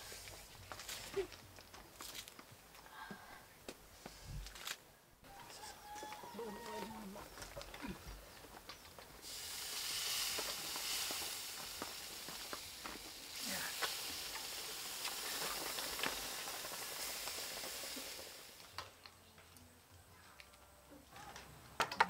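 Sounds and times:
hot stone sizzling in liquid: 8.4s - 19.0s
small crackles and clicks: 10.1s - 22.0s.

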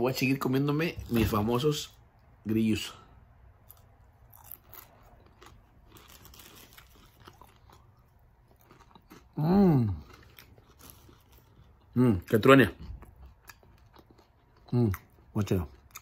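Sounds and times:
man chewing crunchy food: 3.6s - 16.0s.

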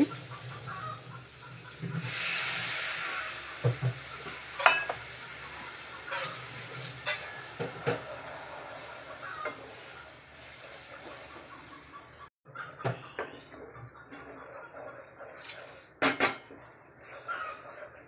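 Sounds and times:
water poured into hot oil hissing: 0.0s - 9.3s, 10.3s - 11.3s
paste sizzling in pan: 0.0s - 9.4s.

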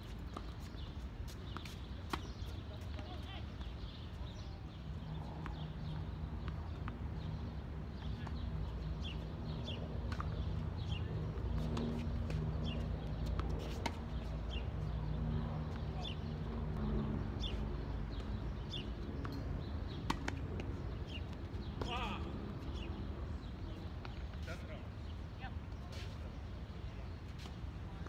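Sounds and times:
tennis ball bounces: 10.0s - 14.9s, 19.1s - 22.0s.

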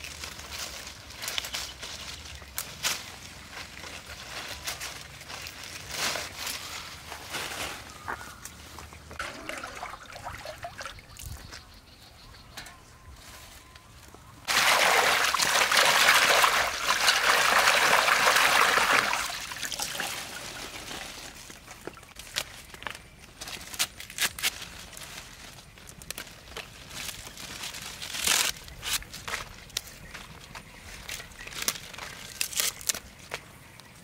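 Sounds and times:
leaves rustling and snapping: 0.0s - 8.7s, 15.4s - 34.0s
water dripping: 9.1s - 11.4s
water splashing in metal basin: 9.2s - 11.2s, 14.5s - 20.6s.

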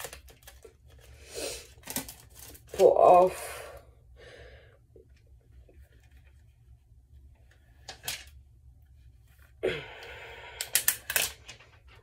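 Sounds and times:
plastic wrapping rustling: 0.0s - 3.3s.

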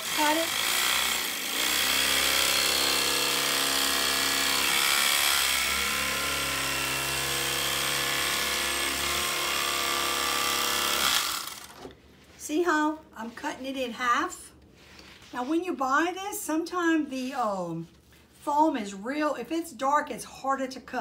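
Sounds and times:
electric knife cutting foam: 0.0s - 11.9s.

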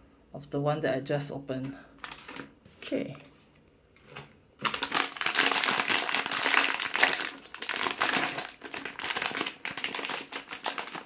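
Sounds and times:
foil pouch crinkling: 2.0s - 2.5s, 4.6s - 11.0s.

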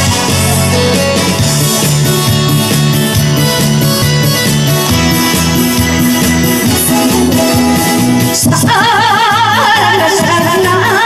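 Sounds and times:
instrumental backing music over loudspeaker: 0.0s - 11.0s
woman singing with vibrato: 6.5s - 11.0s.

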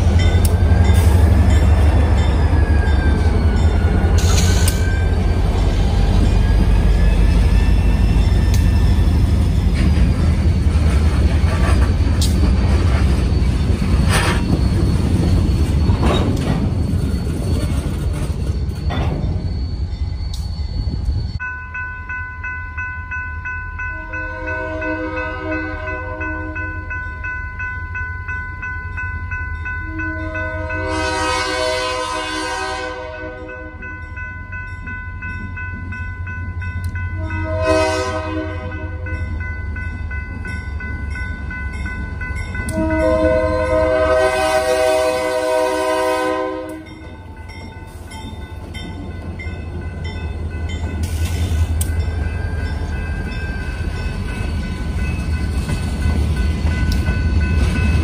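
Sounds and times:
crossing bell ringing: 0.0s - 10.8s, 11.4s - 58.0s
train rumble and wheel clatter: 0.0s - 58.0s
locomotive air horn blasts: 24.0s - 26.6s, 29.9s - 33.7s, 37.2s - 39.0s, 42.7s - 46.9s.

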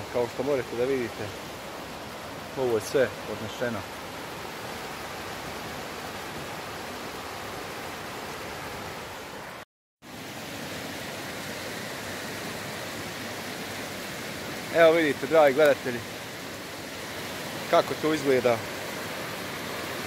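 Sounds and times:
river rushing: 0.0s - 20.0s.

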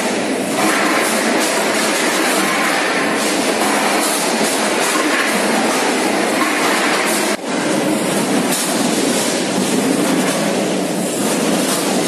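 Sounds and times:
packing machine mechanical noise: 0.0s - 12.0s.

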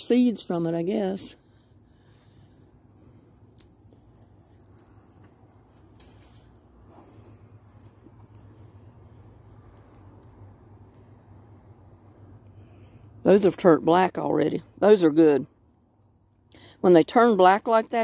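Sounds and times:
low steady hum: 0.0s - 18.0s
dry stems rustling and crackling: 2.1s - 11.1s.

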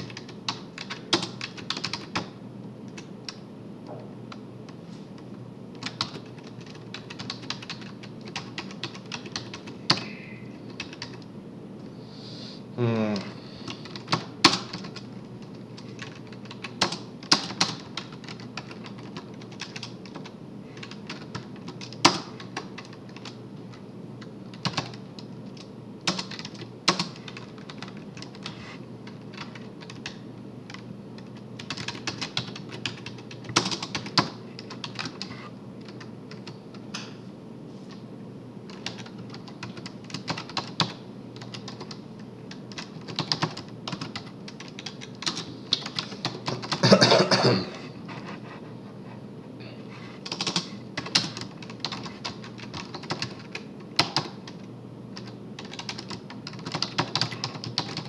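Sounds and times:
typing on computer keyboard: 0.0s - 2.3s, 5.7s - 10.1s, 10.7s - 11.2s, 13.7s - 23.4s, 24.2s - 37.1s, 38.7s - 46.8s, 50.2s - 58.0s.

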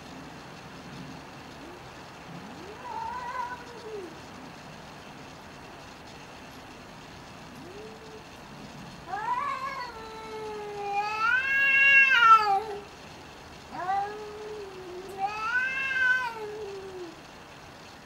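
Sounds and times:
cats yowling: 1.6s - 4.2s, 7.5s - 8.3s, 9.0s - 12.9s, 13.7s - 17.3s.

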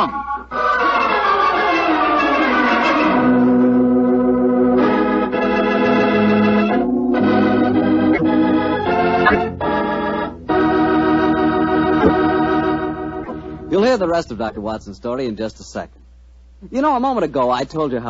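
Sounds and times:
organ playing dramatic chords: 0.0s - 15.0s.

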